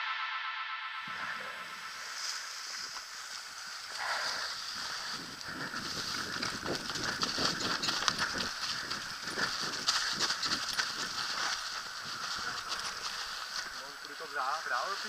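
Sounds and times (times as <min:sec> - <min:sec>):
tyres hissing over leaves: 0:01.1 - 0:15.0
bike rattling over bumps: 0:04.7 - 0:13.8.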